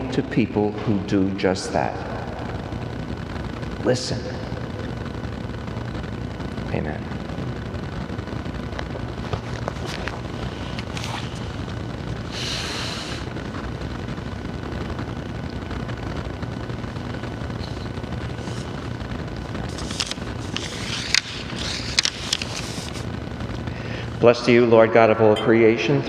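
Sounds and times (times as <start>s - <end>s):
low background rumble: 0.0s - 24.3s
papery rustle: 19.6s - 23.1s.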